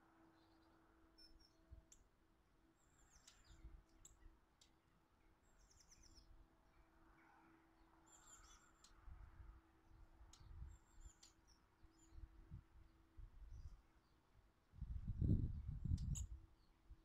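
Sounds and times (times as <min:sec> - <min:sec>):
small birds chirping: 0:00.3 - 0:09.0, 0:10.2 - 0:14.4.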